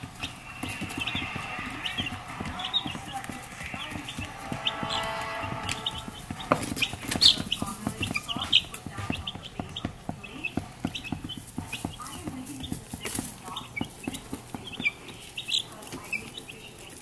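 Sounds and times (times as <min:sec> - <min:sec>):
chicks pecking and scratching in shavings: 0:00.0 - 0:17.0
chicks peeping: 0:00.0 - 0:17.0.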